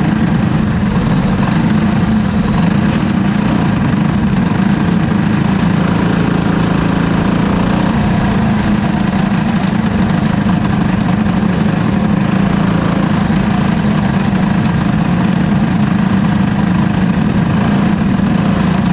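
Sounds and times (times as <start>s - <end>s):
kart engine running: 0.0s - 18.9s.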